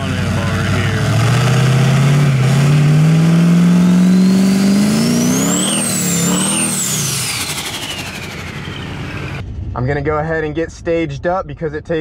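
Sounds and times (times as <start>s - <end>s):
diesel engine revving: 0.0s - 9.6s
turbo whistle: 3.7s - 9.4s.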